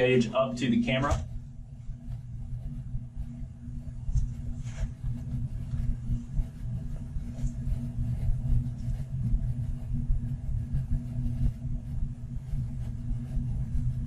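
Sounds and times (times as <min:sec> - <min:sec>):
bathroom exhaust fan running: 0:00.0 - 0:14.0.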